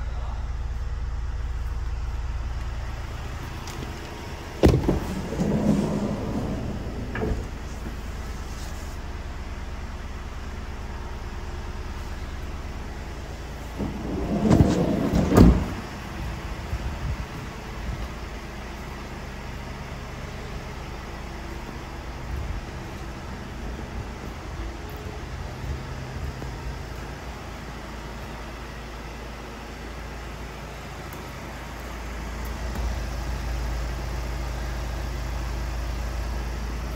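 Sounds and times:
low rumble: 0.0 - 27.6
steady low hum: 0.0 - 36.9
sliding van door rolling and thumping shut: 3.5 - 8.8, 13.5 - 16.9.

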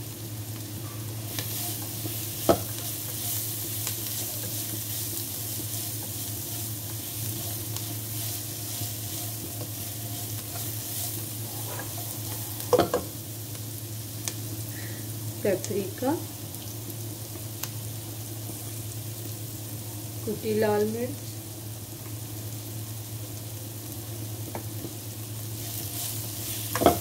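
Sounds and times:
low steady hum: 0.0 - 27.0
vegetables sizzling in a wok: 0.0 - 27.0
spatula scraping and tossing: 1.3 - 12.8, 25.6 - 27.0.

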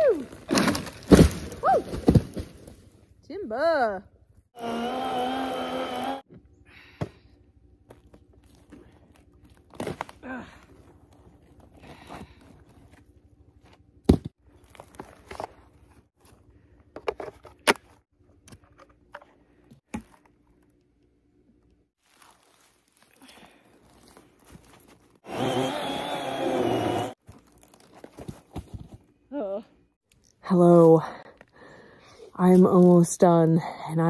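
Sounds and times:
chainsaw motor whine: 4.6 - 6.3, 25.2 - 27.2
footsteps on dry pine needles: 22.0 - 25.2, 27.2 - 28.4.

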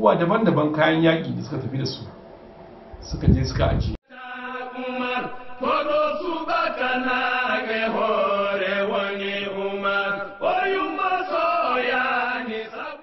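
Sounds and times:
voices singing a religious chant: 4.0 - 13.0.

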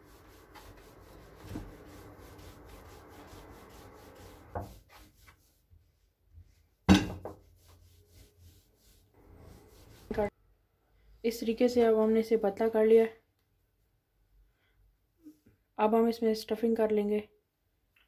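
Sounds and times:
rolling pin rubbing over bread: 0.0 - 10.3.

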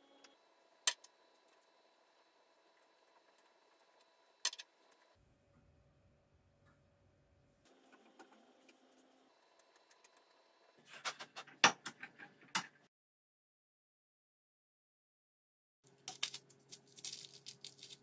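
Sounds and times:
small metal parts clinking: 16.0 - 18.0.

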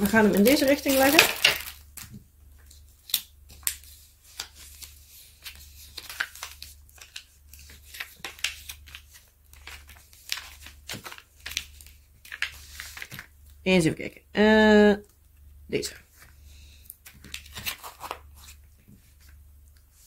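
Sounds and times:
plastic sheet crinkling: 0.0 - 13.3, 17.0 - 19.4.

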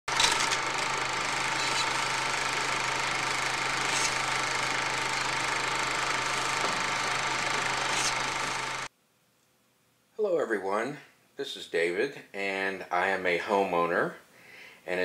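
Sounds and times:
film projector whirring: 0.0 - 8.9.

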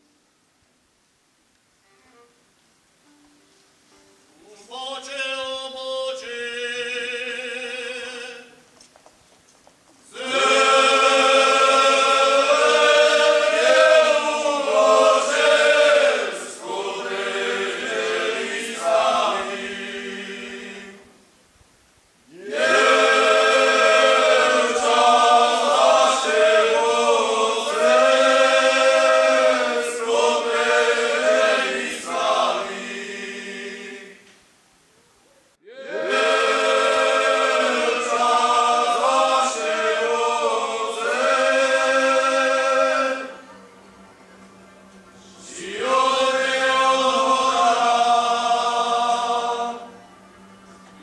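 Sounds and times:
men's choir singing a cappella: 4.4 - 8.6, 10.0 - 21.1, 22.3 - 34.2, 35.6 - 43.4, 45.2 - 50.0.

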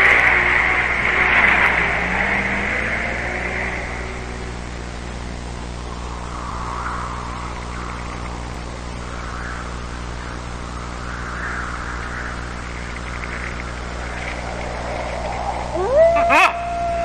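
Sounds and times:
insects chirping: 0.0 - 17.0
low hum: 0.0 - 17.0.

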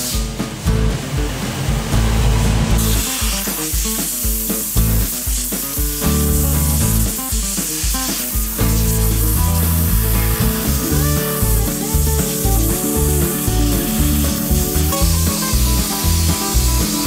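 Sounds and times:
steam cleaner hissing: 0.0 - 17.0
music with pulsing bass: 0.6 - 3.4, 4.8 - 5.2, 6.0 - 7.6, 8.4 - 17.0.

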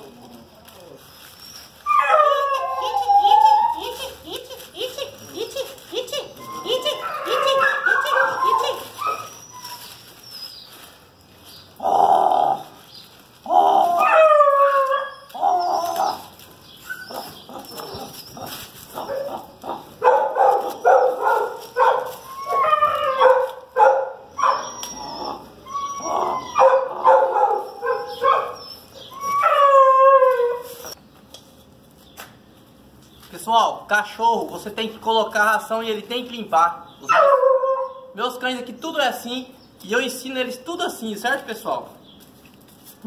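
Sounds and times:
puppies whining: 0.0 - 31.0, 36.9 - 38.1
puppies yipping and barking: 1.0 - 31.0.

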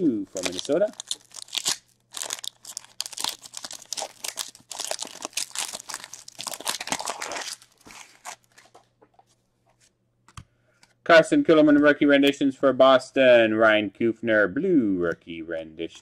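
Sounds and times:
foil wrapper tearing and crinkling: 0.3 - 8.7.

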